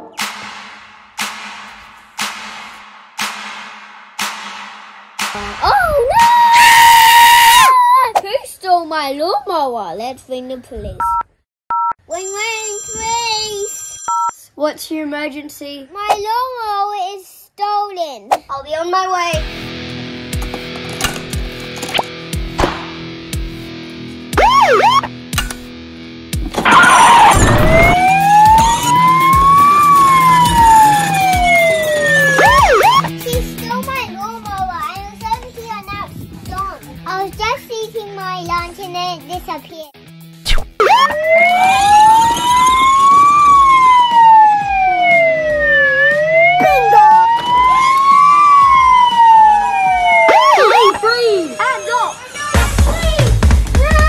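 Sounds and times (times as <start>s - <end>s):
toy siren wailing: 24.4s - 25.1s, 26.7s - 33.1s, 40.8s - 52.6s.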